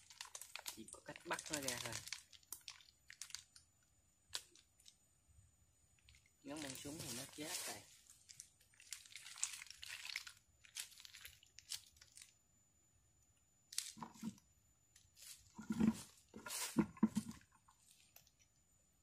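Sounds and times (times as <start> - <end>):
rustling and crunching on dry leaves: 0.0 - 2.2, 6.5 - 11.3, 15.2 - 17.3.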